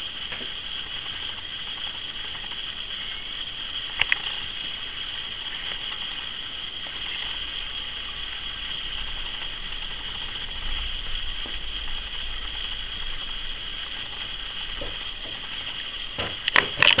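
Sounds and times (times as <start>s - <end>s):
low hum: 0.0s - 17.0s
steady background hiss: 0.0s - 17.0s
sharp knocks: 16.2s - 17.0s.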